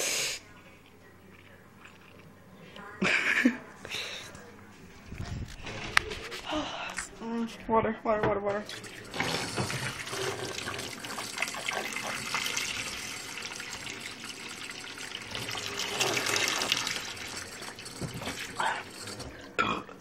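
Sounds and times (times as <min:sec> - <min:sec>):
tap water splashing: 0:17.8 - 0:18.5.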